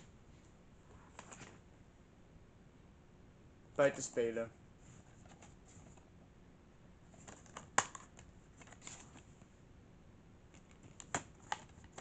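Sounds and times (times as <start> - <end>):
plastic case snapping open: 7.3 - 8.8.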